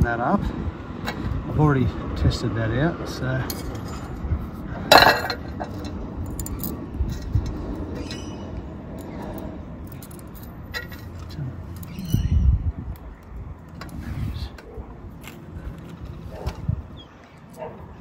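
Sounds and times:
metal bracket clinking: 0:04.9 - 0:08.4, 0:09.0 - 0:12.1.

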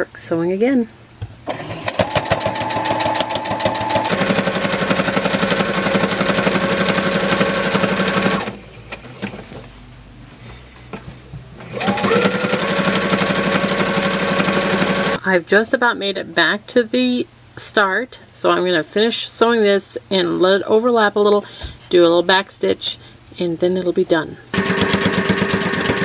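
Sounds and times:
sewing machine stitching: 0:01.5 - 0:08.6, 0:11.6 - 0:15.2, 0:24.5 - 0:26.0.

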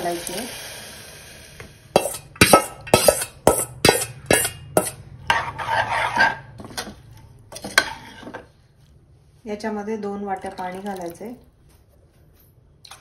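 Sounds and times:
metal spoon knocking on steel bowl: 0:02.0 - 0:05.0
spoon stirring and scraping in cooker: 0:02.0 - 0:09.0.

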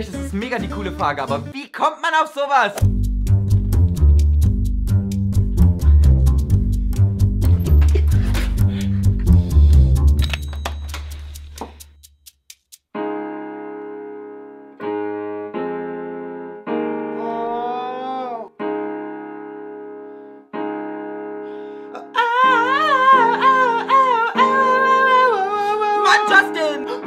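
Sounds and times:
person singing: 0:00.0 - 0:01.7, 0:17.1 - 0:18.6, 0:21.9 - 0:27.0
electronic keyboard chords: 0:11.0 - 0:25.4.

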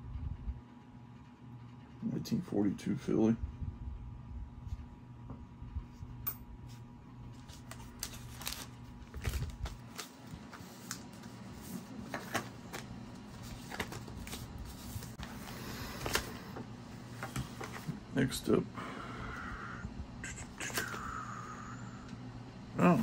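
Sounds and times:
low steady hum: 0:00.0 - 0:23.0
plastic bags rustling: 0:07.4 - 0:16.5.

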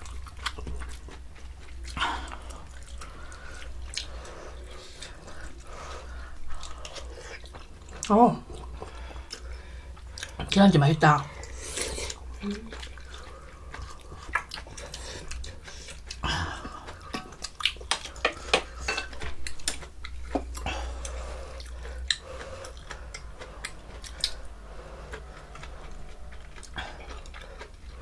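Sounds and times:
utensils clinking against bowls: 0:18.2 - 0:19.2.

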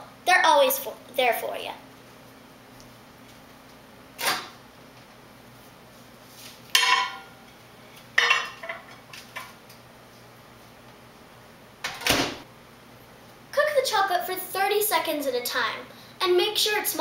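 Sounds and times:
plate knocking and clinking: 0:06.8 - 0:07.3.

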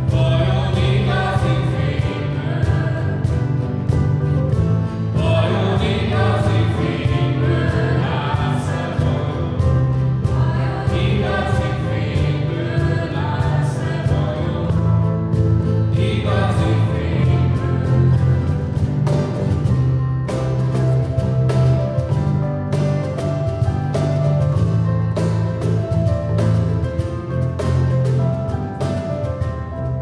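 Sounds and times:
group singing worship song: 0:00.0 - 0:04.0, 0:04.6 - 0:19.4
bass line: 0:00.0 - 0:30.0
steady drum beat: 0:00.0 - 0:30.0.

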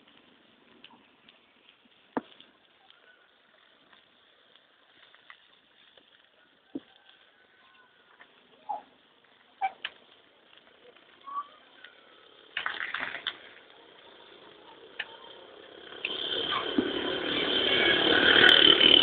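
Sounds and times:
motorized tricycle engine approaching: 0:08.0 - 0:19.0.

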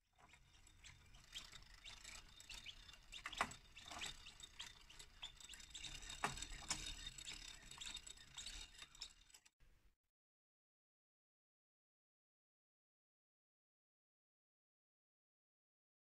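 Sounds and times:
clockwork gears clicking: 0:00.2 - 0:09.5.

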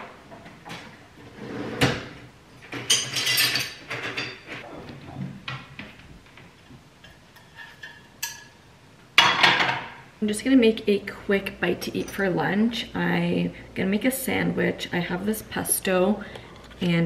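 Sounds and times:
dishes clattering: 0:02.7 - 0:04.6, 0:07.0 - 0:08.6, 0:09.2 - 0:10.0.

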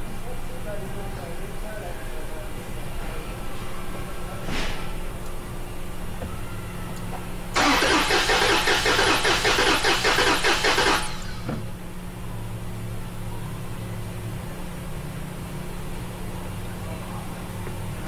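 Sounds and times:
engine cranking on starter: 0:07.6 - 0:11.5.

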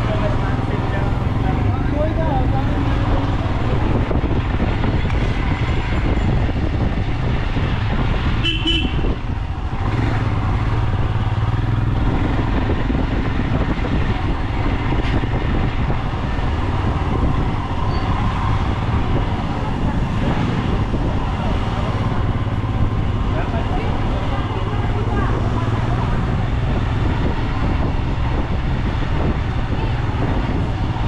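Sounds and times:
vehicle engines rumbling: 0:00.0 - 0:31.0
car horn toot: 0:08.4 - 0:09.2.

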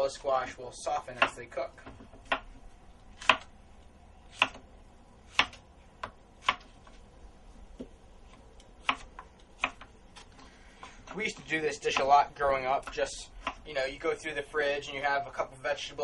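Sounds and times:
knife chopping on cutting board: 0:01.2 - 0:02.6, 0:03.2 - 0:03.5, 0:04.3 - 0:04.6, 0:05.3 - 0:06.7, 0:08.8 - 0:09.9, 0:12.8 - 0:13.6.

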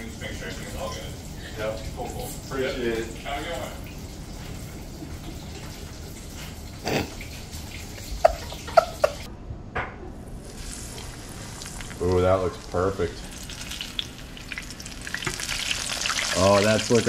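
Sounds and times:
oil sizzling in frying pan: 0:10.6 - 0:17.0.

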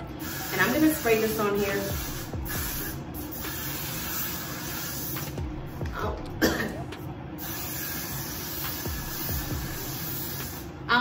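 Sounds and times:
aerosol hairspray hissing: 0:00.2 - 0:05.5, 0:07.4 - 0:10.7.

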